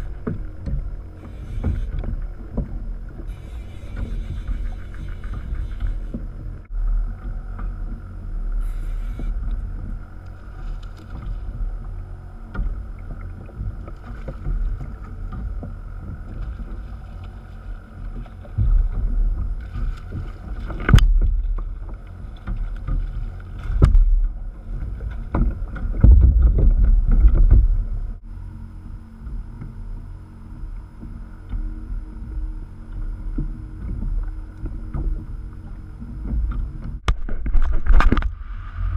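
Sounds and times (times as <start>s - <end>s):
wind buffeting microphone: 0.0s - 28.2s
water sloshing against hull: 0.0s - 38.9s.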